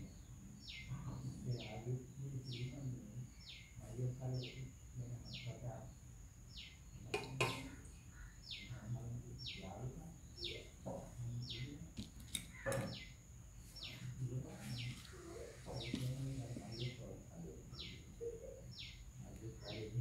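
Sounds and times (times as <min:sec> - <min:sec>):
bird calling: 0:06.5 - 0:20.0.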